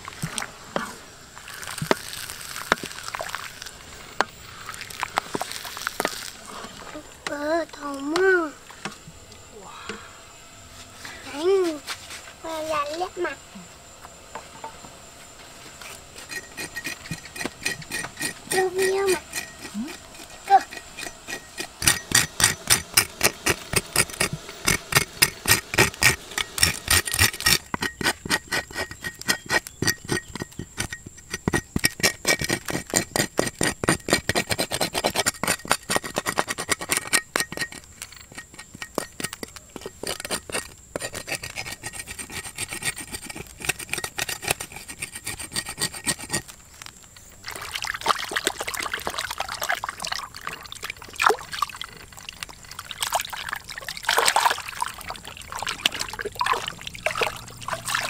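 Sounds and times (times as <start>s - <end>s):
cleaver scraping scaly hide: 15.5s - 47.8s, 48.4s - 58.0s
water sloshing: 47.4s - 58.0s.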